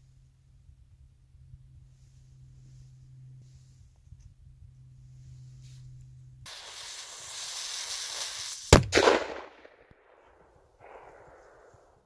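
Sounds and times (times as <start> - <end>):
fuse hissing: 6.5 - 8.8
firecracker bang with echo: 8.7 - 11.8.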